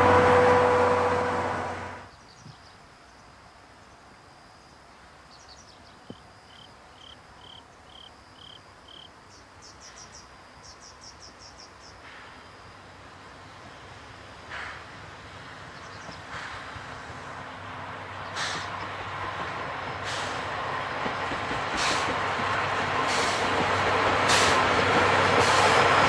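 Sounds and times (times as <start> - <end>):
train coaches rolling past: 0.0 - 2.1, 11.9 - 26.0.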